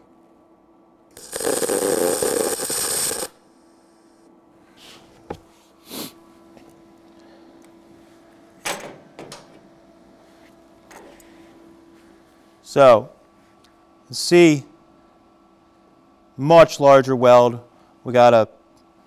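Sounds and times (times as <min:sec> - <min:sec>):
welding arc crackle: 0:01.2 - 0:03.4
faint hiss: 0:01.2 - 0:04.3.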